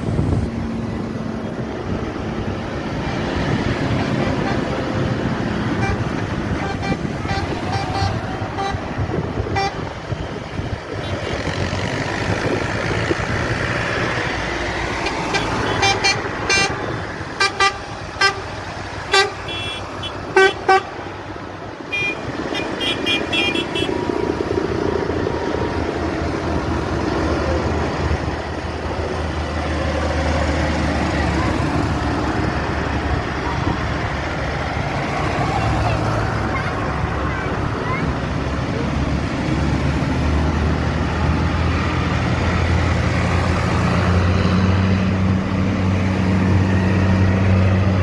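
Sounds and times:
tractor engines running: 0.0s - 48.0s
high-pitched horn toots: 5.8s - 8.9s
vehicle horn blasts: 6.6s - 8.8s, 17.4s - 18.4s, 19.1s - 20.9s, 21.9s - 23.9s.

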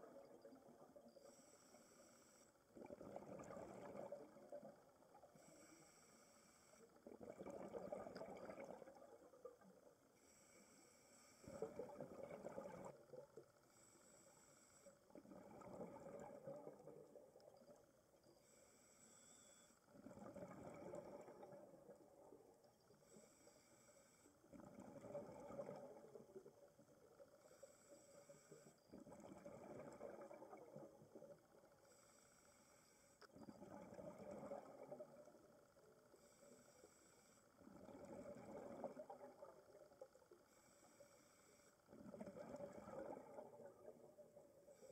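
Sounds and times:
exhaled bubbles underwater: 0.0s - 1.2s, 2.7s - 5.6s, 6.9s - 10.0s, 11.4s - 13.4s, 15.1s - 18.0s, 19.9s - 23.2s, 24.4s - 27.7s, 28.5s - 31.8s, 33.4s - 36.4s, 37.6s - 40.4s, 41.9s - 44.9s.

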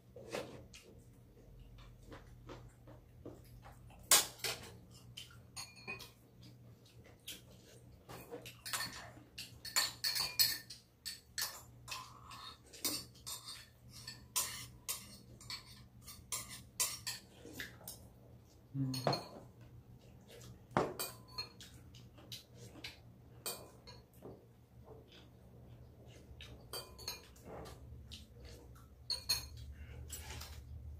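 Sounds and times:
spoons clinking against bowls: 5.5s - 6.2s, 8.1s - 18.0s, 18.8s - 19.5s, 20.8s - 21.8s, 22.8s - 24.2s, 26.1s - 30.6s.

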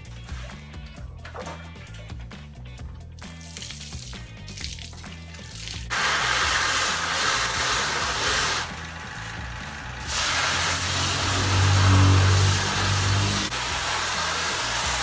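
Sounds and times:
water spray hissing: 5.4s - 15.0s.

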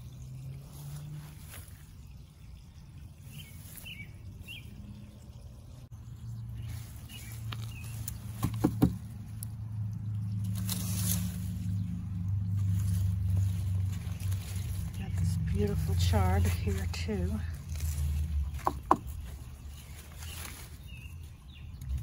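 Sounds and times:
bird chirps: 2.0s - 5.4s, 6.1s - 8.6s.

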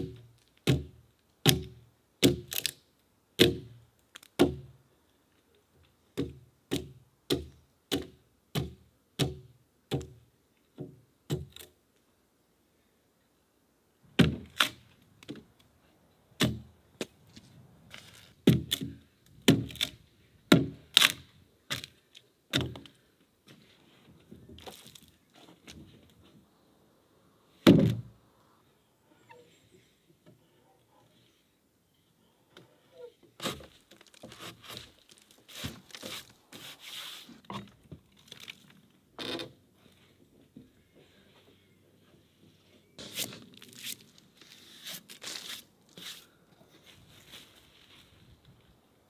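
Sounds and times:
axe chopping into log: 16.4s - 16.7s, 18.5s - 18.9s, 19.5s - 19.9s, 20.5s - 21.2s.

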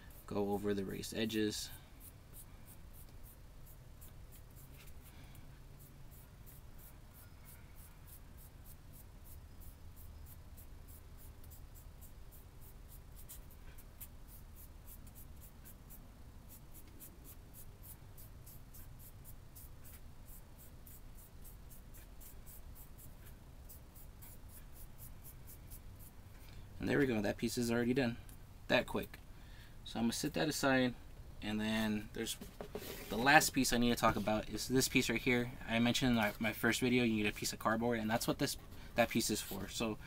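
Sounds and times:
paintbrush scratchy strokes: 2.0s - 5.1s, 5.8s - 26.2s.

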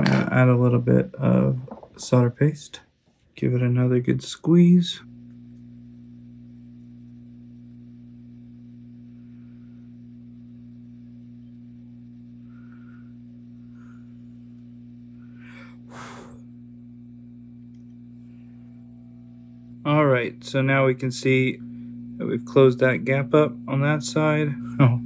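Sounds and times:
low electrical hum: 0.0s - 25.0s
breathy puff of air: 12.3s - 14.4s, 15.1s - 16.8s.

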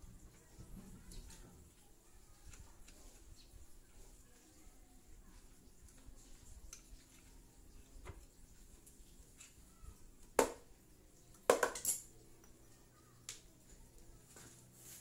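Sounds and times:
metal parts clinking and knocking: 11.5s - 12.2s.

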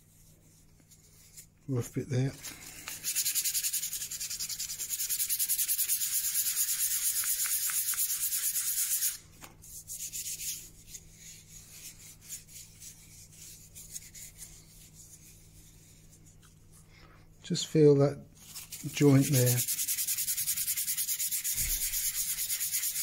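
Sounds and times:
hands rubbing on wood: 2.5s - 16.8s, 18.4s - 23.0s
sandpaper rubbing on wood: 3.0s - 9.2s, 18.6s - 23.0s.

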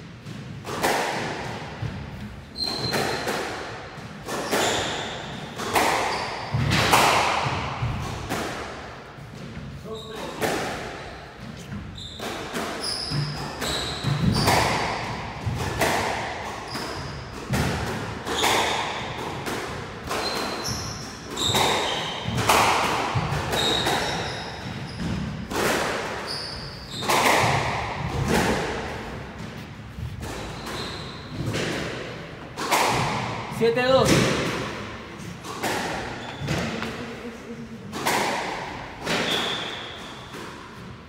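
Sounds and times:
squash ball hit by racket: 0.0s - 37.0s, 37.8s - 41.0s
shoes squeaking on wooden floor: 2.4s - 3.3s, 4.4s - 5.4s, 6.0s - 6.7s, 11.4s - 14.6s, 20.1s - 22.4s, 23.5s - 25.4s, 26.2s - 27.6s, 29.3s - 31.7s, 35.3s - 37.0s, 39.1s - 40.4s.

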